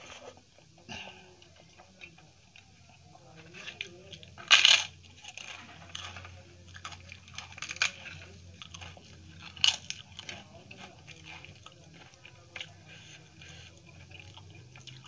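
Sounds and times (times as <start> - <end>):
food squelching mixed by hand: 5.0 - 15.0.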